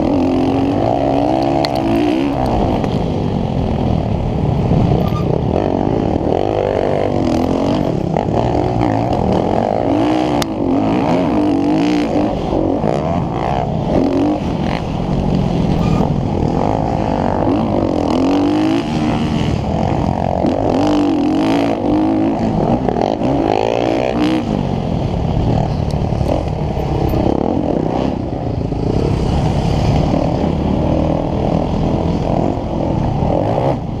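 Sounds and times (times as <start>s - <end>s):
dirt bike engine revving: 0.0s - 34.0s.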